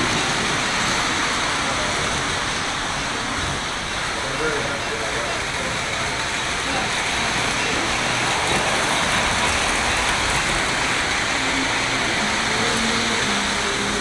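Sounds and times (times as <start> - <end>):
model train wheels clattering: 3.4 - 14.0.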